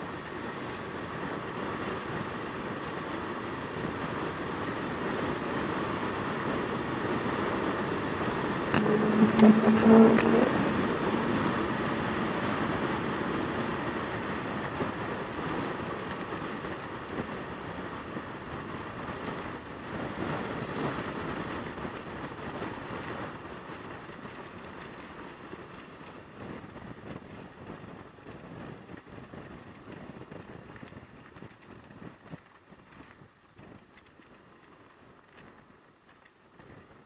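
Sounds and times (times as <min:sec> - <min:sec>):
road noise: 0:00.1 - 0:26.2
wind rushing: 0:08.6 - 0:14.0
motorcycle engine: 0:08.7 - 0:13.4.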